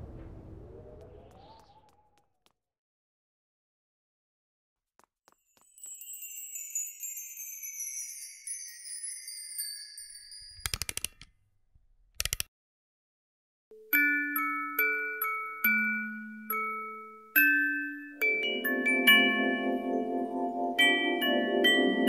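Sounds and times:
glockenspiel melody: 0:05.5 - 0:10.6, 0:13.7 - 0:22.0
sparkling chime cascade: 0:05.6 - 0:10.6.

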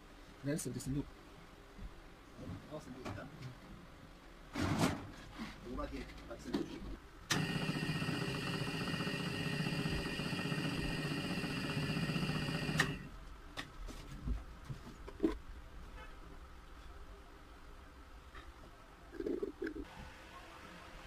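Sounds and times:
drill press motor whining: 0:07.3 - 0:13.1.

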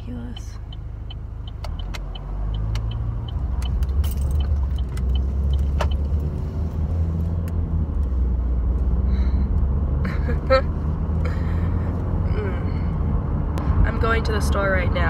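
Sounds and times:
car engine and road noise: 0:00.0 - 0:15.0
light ticking and jingling: 0:00.1 - 0:05.7.

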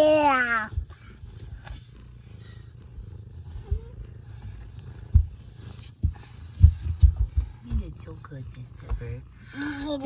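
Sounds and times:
cat purring: 0:00.0 - 0:10.0
soft thumps: 0:03.6 - 0:09.2.

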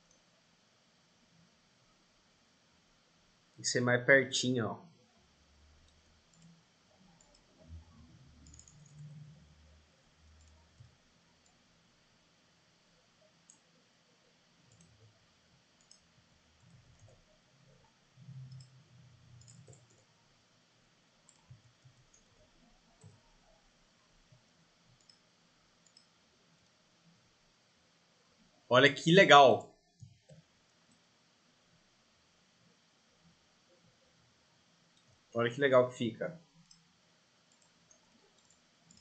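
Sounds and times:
faint computer mouse clicks: 0:08.4 - 0:09.2, 0:14.7 - 0:15.0, 0:15.8 - 0:16.0, 0:18.2 - 0:18.8, 0:24.9 - 0:25.2, 0:25.8 - 0:26.1, 0:37.5 - 0:39.0.

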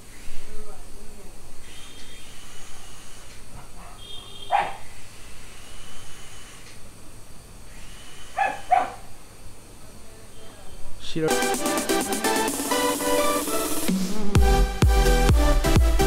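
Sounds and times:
dog barking: 0:03.5 - 0:04.9, 0:08.4 - 0:09.1.

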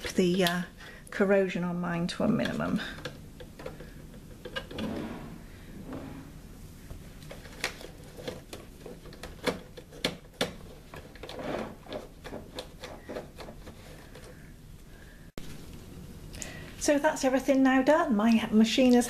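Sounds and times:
cloth rubbing on sewing machine: 0:04.7 - 0:06.5.

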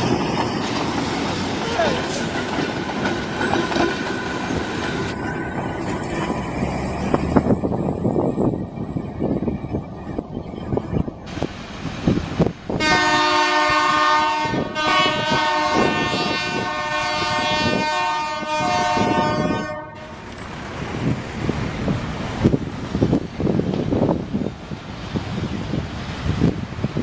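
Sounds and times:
train rumbling past: 0:00.0 - 0:27.0
locomotive air horn blast: 0:12.7 - 0:20.2.

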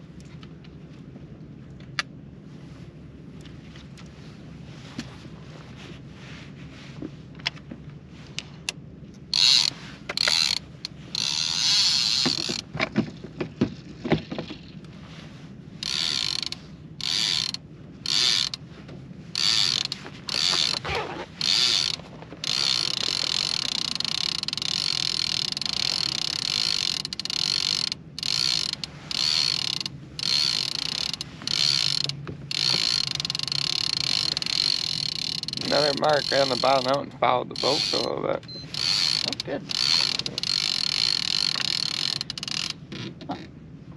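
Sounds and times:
fishing reel clicker ratcheting: 0:09.3 - 0:12.6, 0:15.8 - 0:18.6, 0:19.4 - 0:37.0, 0:37.6 - 0:38.1, 0:38.7 - 0:42.8.

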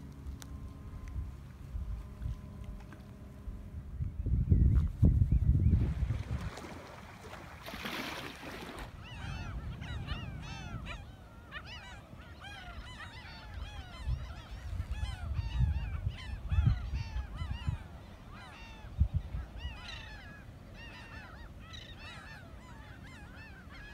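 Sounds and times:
seabirds calling: 0:00.0 - 0:23.9
wind gusts on microphone: 0:03.5 - 0:11.5, 0:13.5 - 0:20.4.

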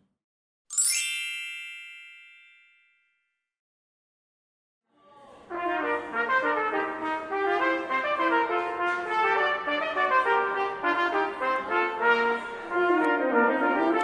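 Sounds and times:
bell ding ringing: 0:00.7 - 0:03.0
brass music: 0:05.5 - 0:14.0.

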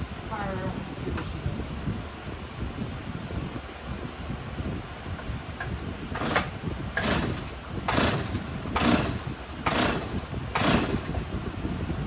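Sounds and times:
chainsaw starter cord pulls: 0:06.2 - 0:11.2.

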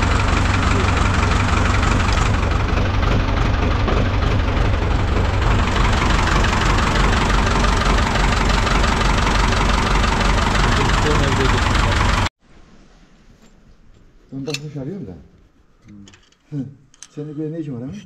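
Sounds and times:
tractor engine idling: 0:00.0 - 0:12.3.

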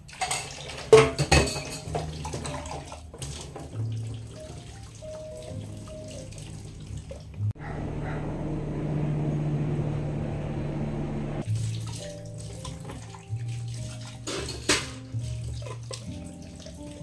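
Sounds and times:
dishes being washed: 0:00.0 - 0:07.5, 0:11.4 - 0:17.0
rushing sound with low hum: 0:07.6 - 0:11.4.

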